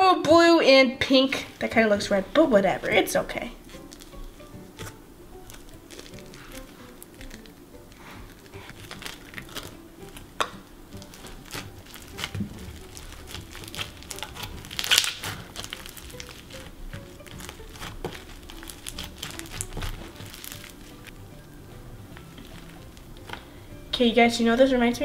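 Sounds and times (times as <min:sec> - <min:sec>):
faint background music: 0:00.0 - 0:25.0
small crackles and clicks: 0:04.8 - 0:21.1
slime being squeezed by hand: 0:11.0 - 0:20.9.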